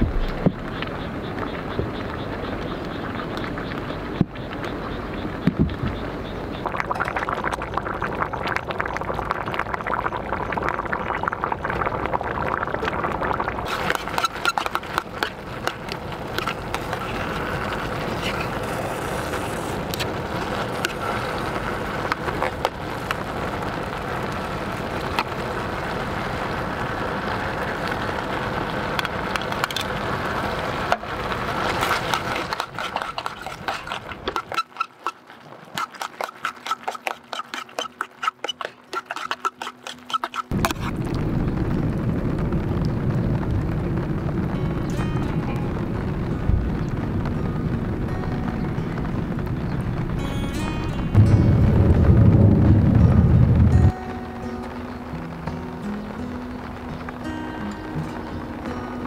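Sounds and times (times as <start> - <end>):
water boiling in a tin: 0.8 - 44.3.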